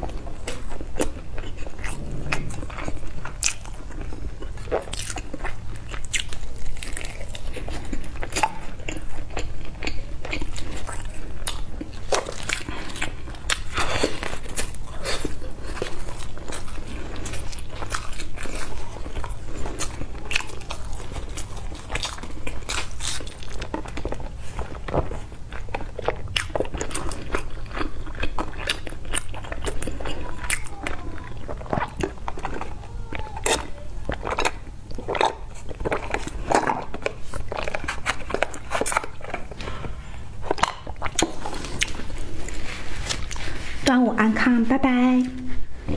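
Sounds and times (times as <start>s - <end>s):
biting and chewing sticky food: 0.0s - 43.8s
low hum: 1.4s - 4.4s.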